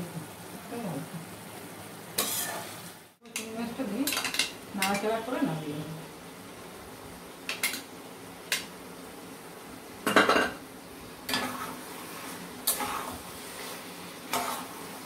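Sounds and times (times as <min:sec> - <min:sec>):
metal spatula scraping a pan: 0:02.2 - 0:02.7, 0:11.3 - 0:15.0.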